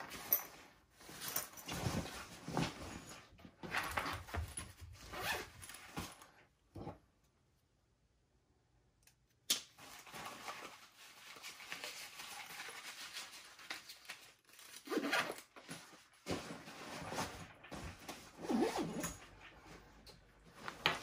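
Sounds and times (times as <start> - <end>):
fabric rustling: 0.0 - 6.5, 9.8 - 21.0.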